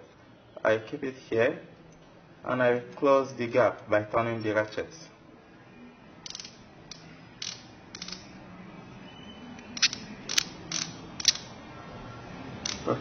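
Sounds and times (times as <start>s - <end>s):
micrometer ratchet clicking: 6.3s - 8.3s, 9.7s - 11.5s, 12.6s - 12.9s.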